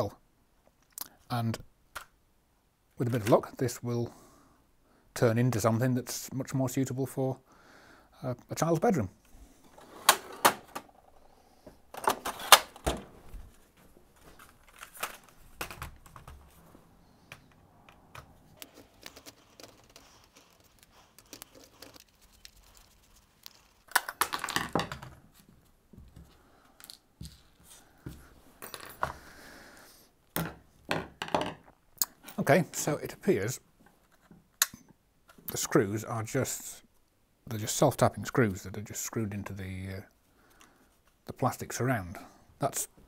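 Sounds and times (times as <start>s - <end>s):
parts set down on wooden bench: 24.2s - 25.2s, 30.4s - 31.7s.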